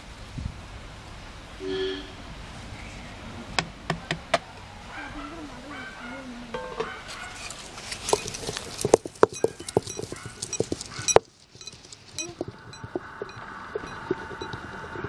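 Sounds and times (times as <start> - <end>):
stone pestle grinding in mortar: 7.1 - 15.0.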